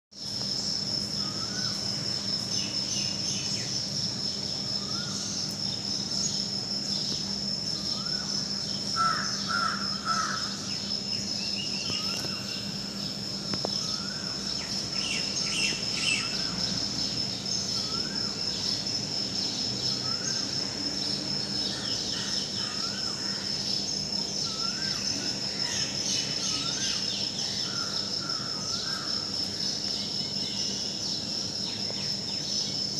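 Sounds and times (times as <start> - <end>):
high insect trill: 0.1 - 32.9
crows cawing: 9.0 - 10.6.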